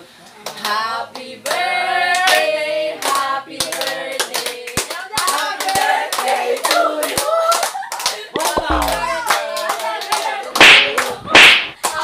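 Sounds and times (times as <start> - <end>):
group singing a birthday song: 0.5 - 12.0
people clapping in time: 3.0 - 12.0.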